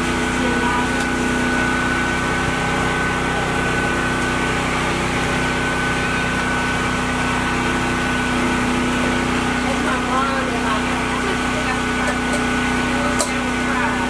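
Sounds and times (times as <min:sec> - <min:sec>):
engine humming with high whine: 0:00.0 - 0:14.0.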